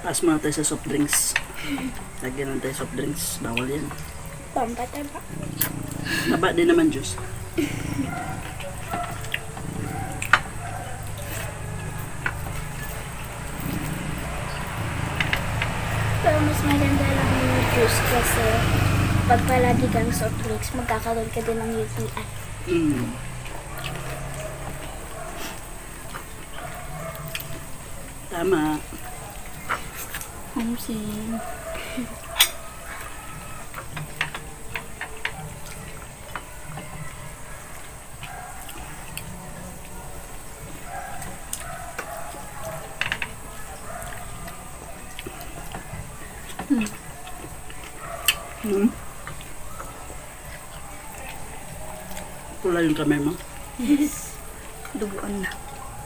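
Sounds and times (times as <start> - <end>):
dishes clicking: 7.2 - 16.0.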